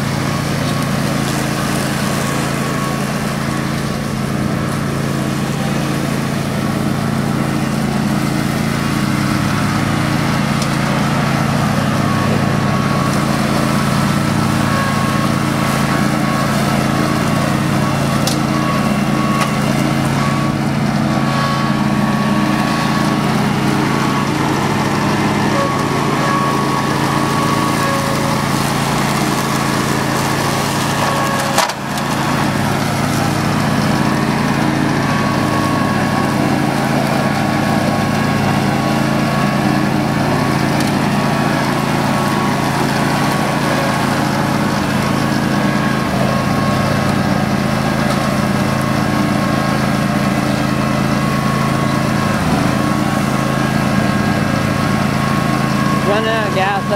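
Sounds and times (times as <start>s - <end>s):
riding mower engine running: 0.0s - 56.9s.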